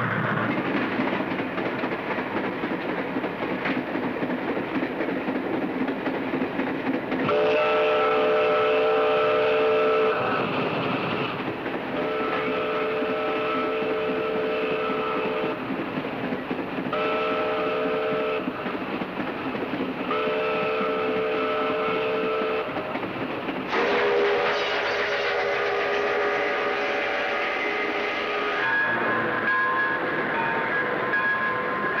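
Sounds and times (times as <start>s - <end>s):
moving train running noise: 0.0s - 32.0s
steam locomotive whistle: 7.2s - 10.6s, 11.9s - 15.6s, 16.9s - 18.6s, 20.1s - 22.8s, 23.7s - 32.0s.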